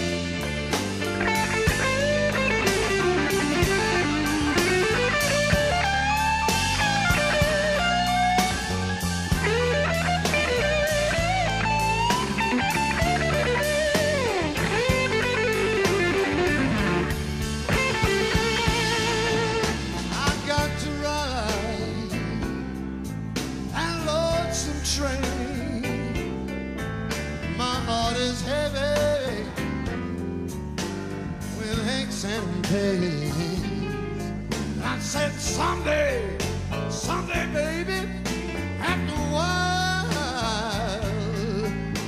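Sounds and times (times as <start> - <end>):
electric guitar bent notes: 0.0 - 22.0
steady drum beat: 0.0 - 26.4
bass: 0.0 - 42.0.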